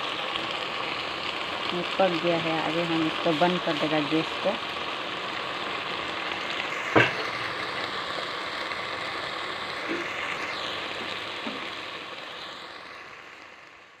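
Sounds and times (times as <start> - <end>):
vegetables sizzling in a pot: 0.0 - 14.0.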